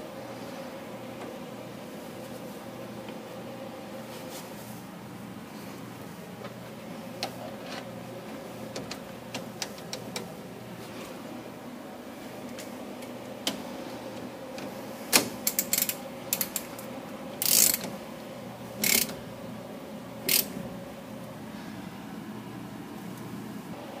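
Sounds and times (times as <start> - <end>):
steady low hum: 0.0 - 24.0
ratchet wrench clicking: 15.4 - 16.8, 17.4 - 17.9, 18.8 - 19.2, 20.3 - 20.6.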